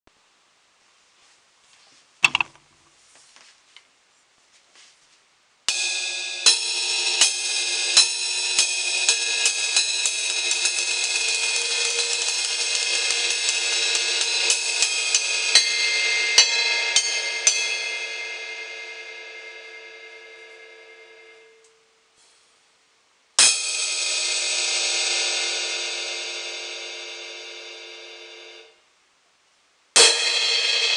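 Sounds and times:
crash cymbal struck with drumsticks: 0:05.7 - 0:18.9, 0:30.0 - 0:30.9.

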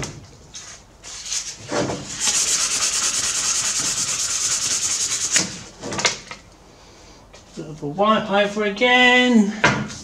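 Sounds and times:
sandpaper scratching on steel: 0:02.2 - 0:05.6.

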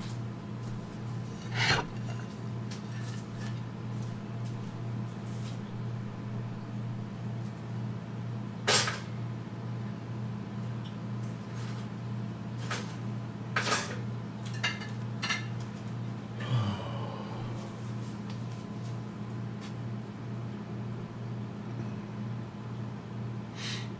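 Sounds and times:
steady low hum: 0:00.0 - 0:08.7, 0:15.8 - 0:23.6
dishes clinking: 0:01.4 - 0:02.4.

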